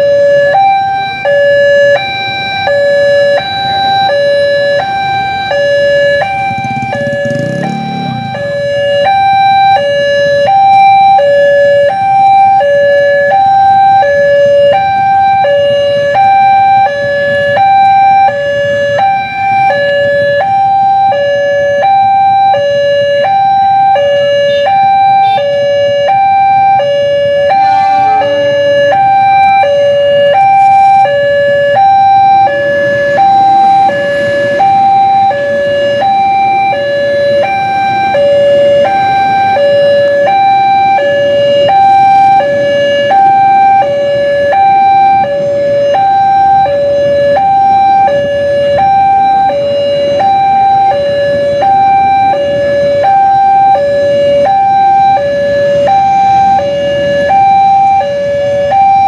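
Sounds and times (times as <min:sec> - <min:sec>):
motorcycle traffic humming: 0:00.0 - 0:59.0
two-tone crossing warning alarm: 0:00.0 - 0:59.0.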